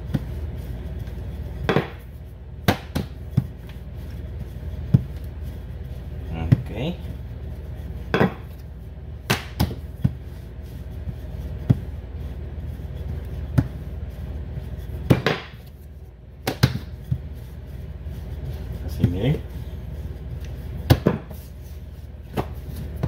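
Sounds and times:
rolling pin knocking on counter: 1.7s - 2.0s.

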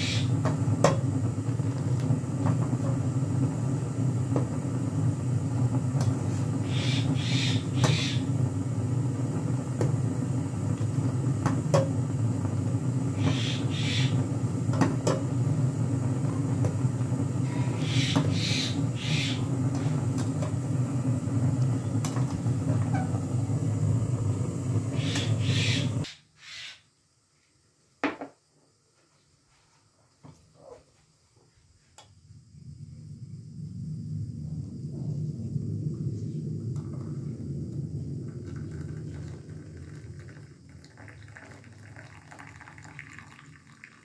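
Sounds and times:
tea boiling in a saucepan: 0.0s - 26.1s, 35.9s - 44.0s.

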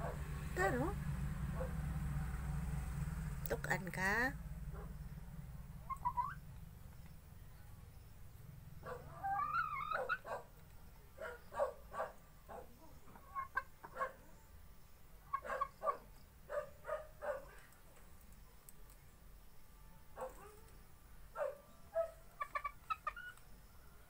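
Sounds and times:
hen calling: 5.8s - 6.4s, 8.9s - 10.3s, 12.8s - 13.8s
hen clucking: 5.8s - 6.4s, 9.1s - 10.4s, 12.7s - 14.0s, 22.4s - 23.4s.

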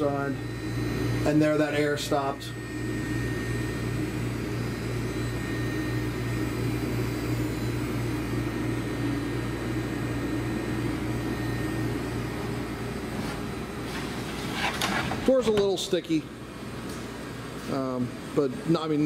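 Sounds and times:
faint high whine: 0.0s - 13.8s
grinding machine humming: 0.0s - 19.0s.

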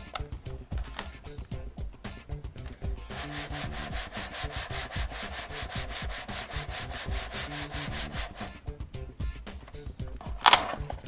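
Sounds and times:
cardboard scraping on surface: 3.1s - 8.5s.

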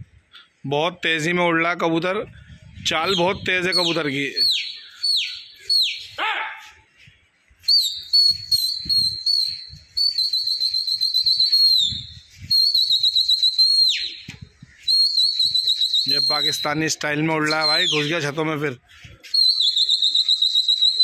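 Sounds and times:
person whistling shrilly: 3.1s - 6.7s, 7.6s - 16.8s, 17.5s - 18.1s, 19.2s - 21.0s.

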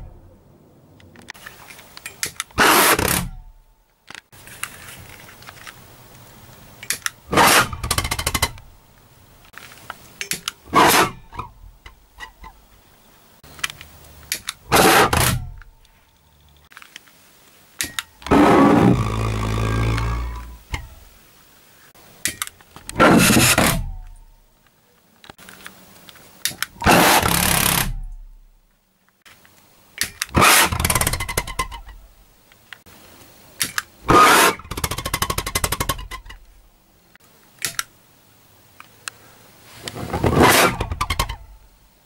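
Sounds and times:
small clicks: 37.1s - 37.9s.

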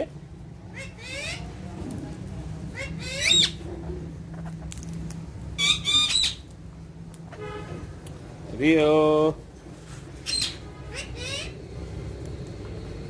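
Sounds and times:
steady low hum: 0.0s - 13.0s
parakeets squawking: 0.6s - 1.6s, 2.6s - 4.7s, 5.5s - 6.5s, 10.2s - 11.9s.

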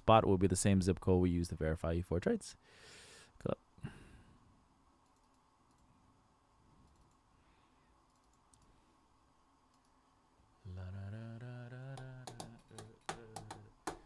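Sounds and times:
computer keyboard and mouse clicks: 12.0s - 14.0s.

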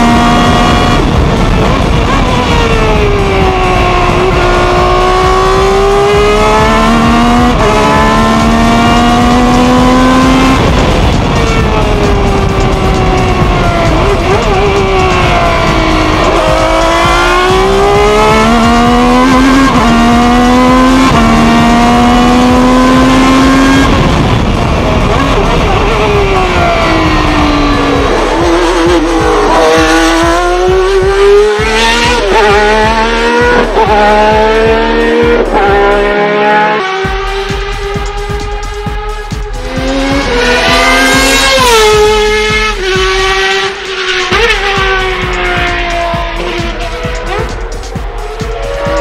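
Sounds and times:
race car engine revving: 0.0s - 49.0s.

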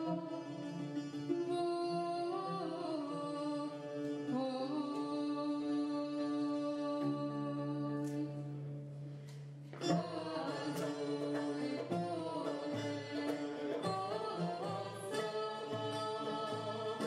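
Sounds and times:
plucked oud melody: 7.1s - 17.0s.

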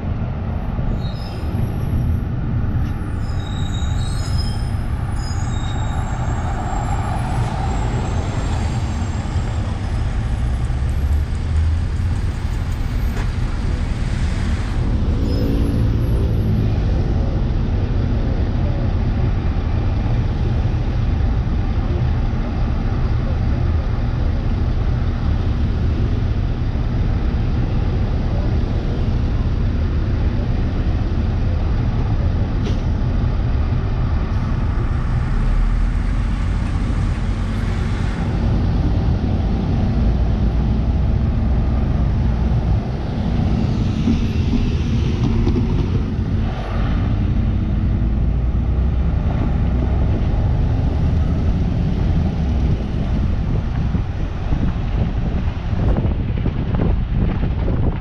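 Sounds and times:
bus engine and road rumble: 0.0s - 58.0s
high brake squeaks: 3.0s - 7.5s.

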